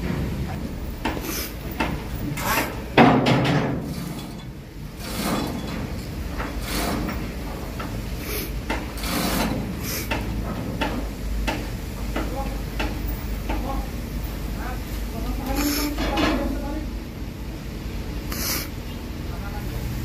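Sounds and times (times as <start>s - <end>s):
knocking and scraping on steel hull: 0.0s - 13.7s.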